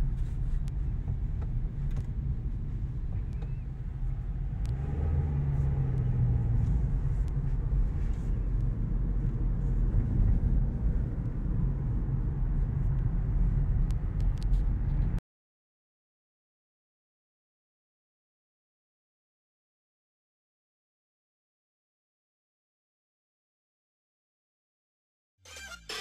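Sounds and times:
car cabin road rumble: 0.0s - 15.2s.

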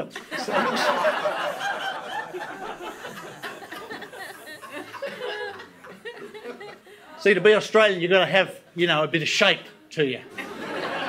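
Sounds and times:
audience laughing: 0.0s - 7.4s, 10.3s - 11.0s.

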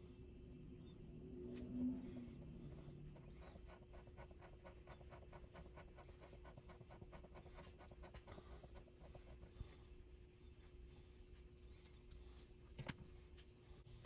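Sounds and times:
steady low hum: 0.0s - 14.0s
faint rapid scratching strokes: 1.6s - 12.6s.

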